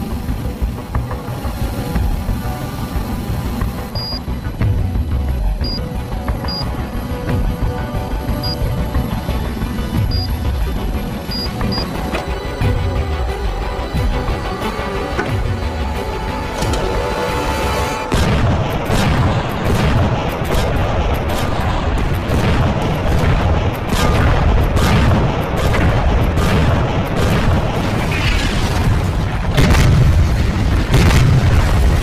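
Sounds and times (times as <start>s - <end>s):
background music: 0.0s - 32.0s
explosions and gunshots: 18.1s - 32.0s.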